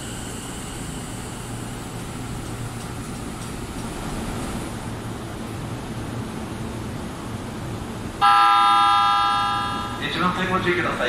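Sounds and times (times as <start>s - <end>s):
train wheels rumbling on rail: 0.0s - 8.2s.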